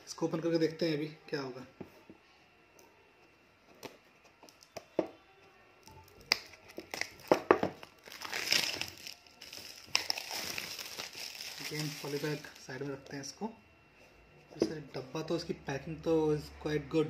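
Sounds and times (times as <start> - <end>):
plastic bag crinkling: 6.4 - 12.8.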